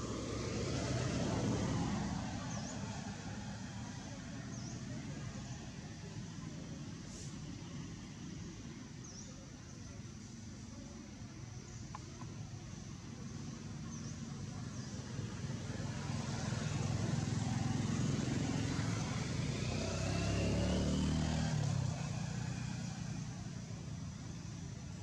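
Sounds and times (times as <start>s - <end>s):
vehicle engine passing: 0.0s - 6.2s, 13.8s - 24.8s.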